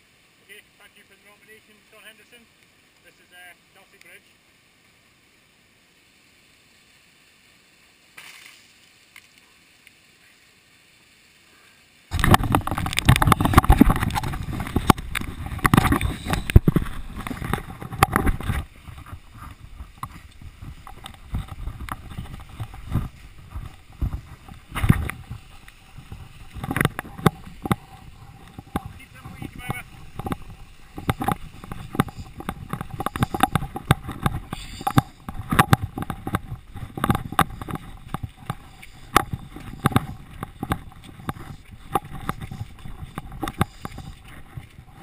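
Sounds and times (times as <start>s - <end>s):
camera jostled rumbling and knocking: 12.1s - 45.0s
rustles moving through undergrowth: 12.1s - 45.0s.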